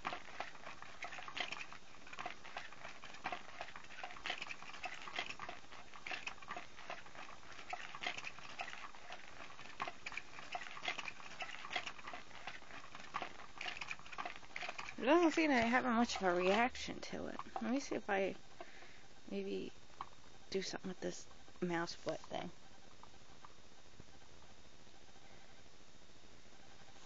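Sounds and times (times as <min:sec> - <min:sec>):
cat toy motor clicking and rustling: 0:00.0 - 0:18.3.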